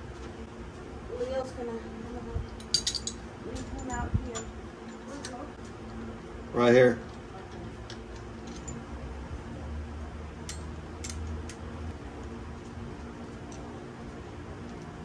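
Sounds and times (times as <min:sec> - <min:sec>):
low background hum: 0:00.0 - 0:15.0
wrench clicking on bolt: 0:10.4 - 0:11.6.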